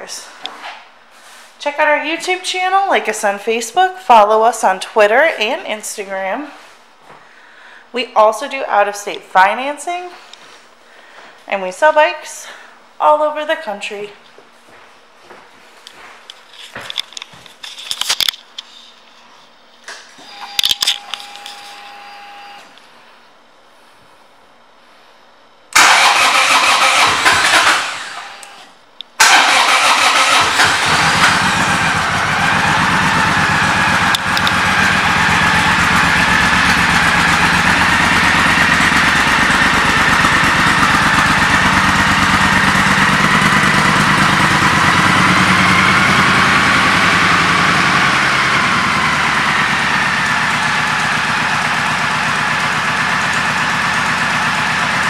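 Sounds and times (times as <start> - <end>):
motorcycle engine starting and idling: 25.7 - 55.0.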